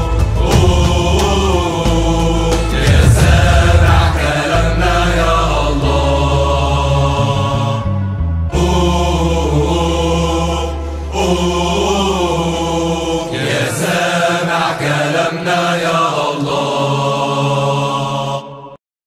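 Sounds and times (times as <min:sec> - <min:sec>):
steady low drone: 0:00.0 - 0:14.5
chanted vocals: 0:00.0 - 0:18.8.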